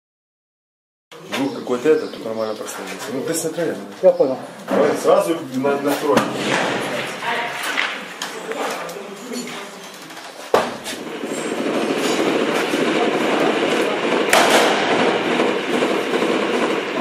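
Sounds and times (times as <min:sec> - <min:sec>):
sharp gunshot: 0:06.2 - 0:07.1, 0:14.3 - 0:16.7.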